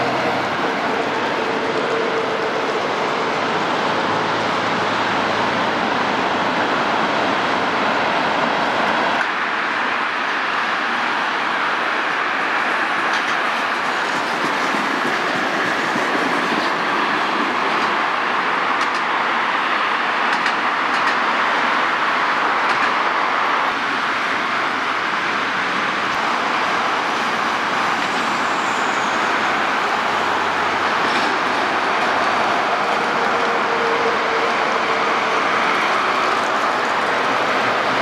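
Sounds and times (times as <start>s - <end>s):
road traffic: 0.0s - 38.0s
tram wheels rumbling on rails: 0.0s - 38.0s
faint rail clicks: 13.0s - 16.8s, 18.8s - 19.1s, 20.3s - 21.3s, 22.6s - 23.0s.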